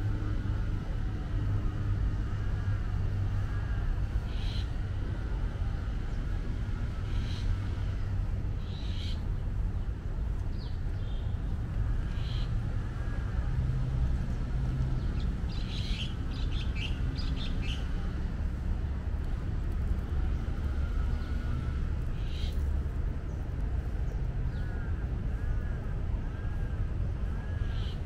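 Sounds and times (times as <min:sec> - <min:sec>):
steady low rumble: 0:00.0 - 0:28.0
small birds chirping: 0:15.0 - 0:18.1, 0:22.2 - 0:24.9.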